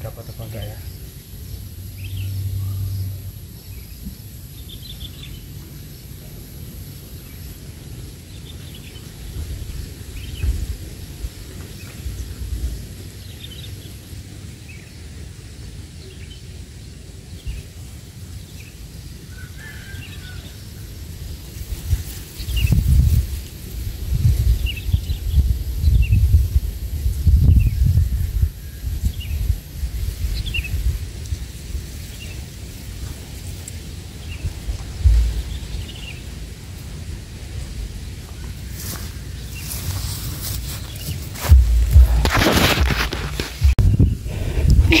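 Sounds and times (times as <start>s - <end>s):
bird chirps: 0.0s - 5.5s
low uneven rumble: 0.0s - 8.5s, 34.4s - 45.0s
thumps: 41.5s - 44.0s.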